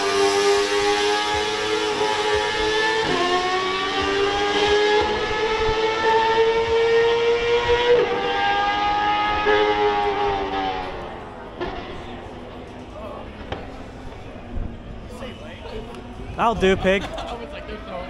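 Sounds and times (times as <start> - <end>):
race car engine at high revs: 0.0 - 11.0.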